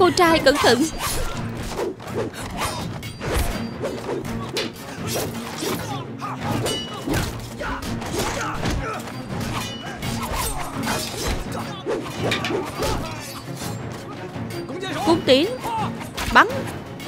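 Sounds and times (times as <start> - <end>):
action music score: 0.0 - 17.0
ringing metal clangs: 2.7 - 3.8, 6.5 - 11.6.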